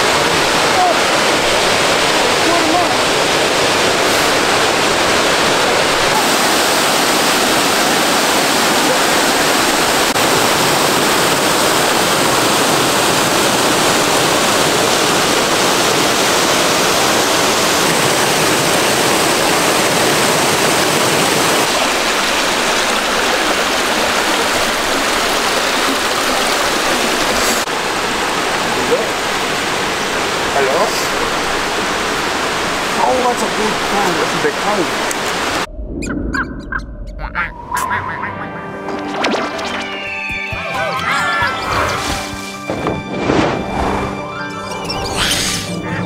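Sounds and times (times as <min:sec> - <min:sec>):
waterfall and river rushing: 0:00.0 - 0:35.7.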